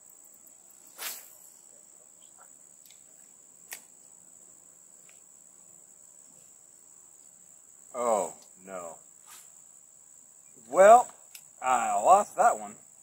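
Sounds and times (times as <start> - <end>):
insects droning: 0.0 - 13.0
short sharp swish: 0.9 - 1.4, 9.2 - 9.5.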